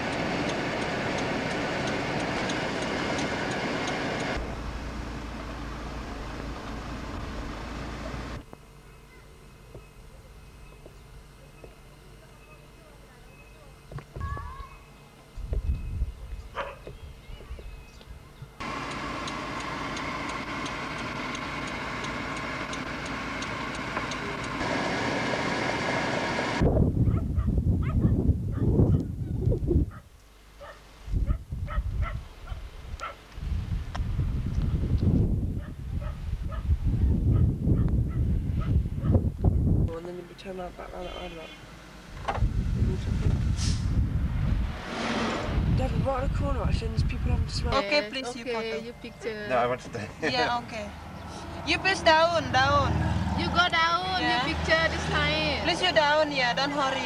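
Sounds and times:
light high ticking: 0.0s - 4.4s, 18.6s - 24.6s
moving vehicle running noise: 0.0s - 8.8s, 18.6s - 28.0s, 33.4s - 57.0s.

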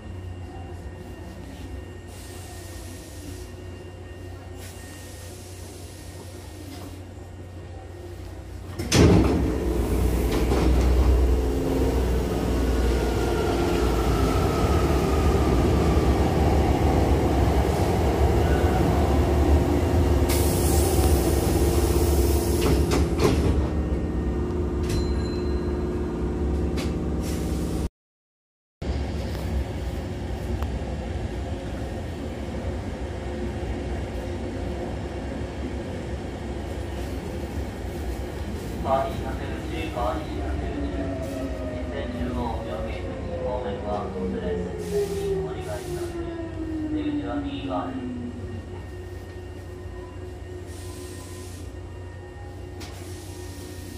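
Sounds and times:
stopped train low hum: 0.0s - 27.9s, 28.8s - 53.9s
train doors opening with thump: 8.6s - 11.2s, 22.5s - 23.8s.

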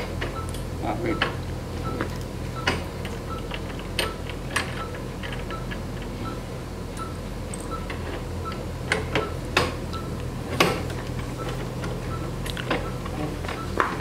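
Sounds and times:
equipment hum: 0.0s - 14.0s.

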